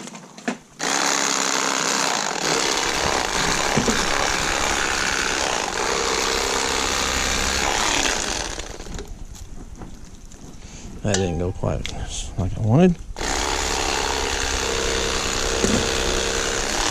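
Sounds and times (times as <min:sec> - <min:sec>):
electric knife cutting fish: 0:00.8 - 0:09.1, 0:13.2 - 0:16.9.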